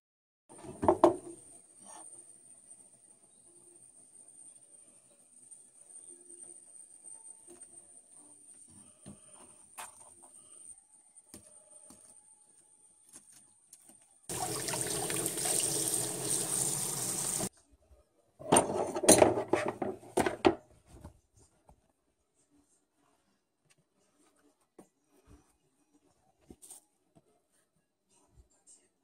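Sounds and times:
tap water running into basin: 14.3 - 17.5.

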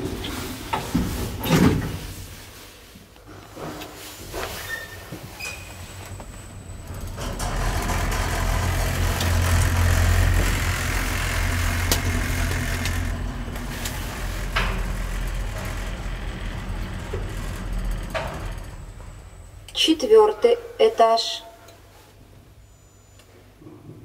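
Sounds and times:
lift car humming: 5.4 - 20.5.

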